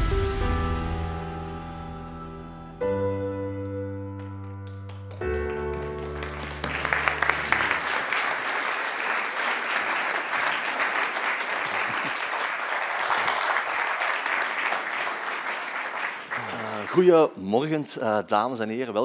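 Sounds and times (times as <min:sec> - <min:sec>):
audience applause: 0:04.4 - 0:17.4.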